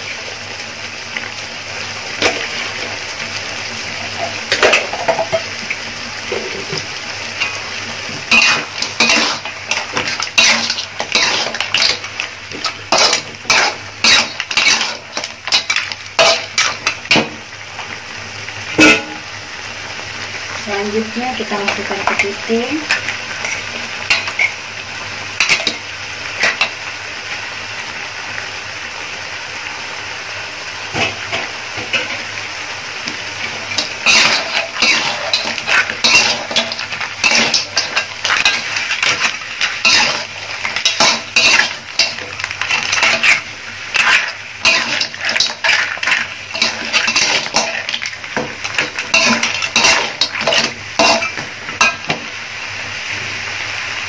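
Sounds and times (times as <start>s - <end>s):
frying sizzle: 0.0s - 54.0s
metal spatula scraping a wok: 8.2s - 17.2s, 25.4s - 25.8s, 33.4s - 52.2s.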